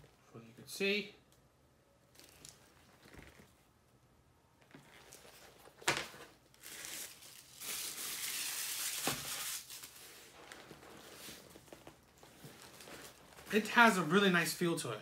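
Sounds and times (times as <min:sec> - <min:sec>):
backpack material rustling: 0:04.6 - 0:13.8.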